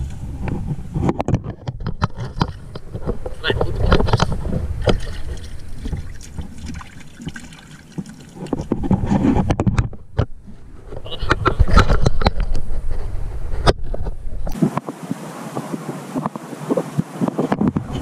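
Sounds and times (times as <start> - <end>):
water splashing: 1.8 - 10.2.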